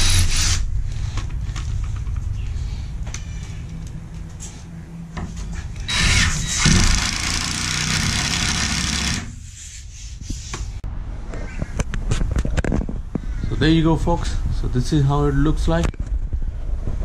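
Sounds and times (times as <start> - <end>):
cordless drill into plywood: 5.9 - 9.3.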